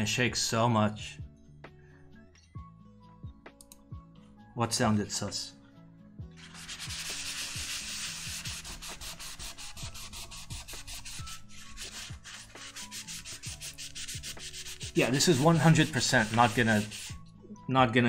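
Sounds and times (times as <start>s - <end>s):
paper towel scrubbing metal: 6.4s - 17.2s.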